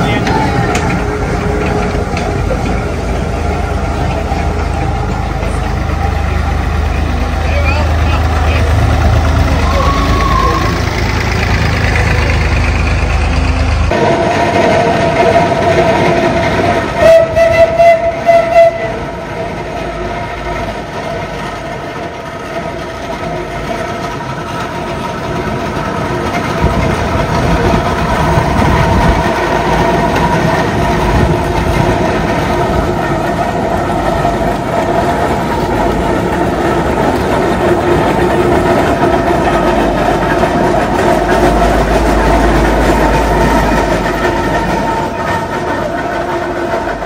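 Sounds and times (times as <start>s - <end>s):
steam traction engine rumbling: 0.0s - 47.0s
steam whistle blasts: 17.0s - 19.0s.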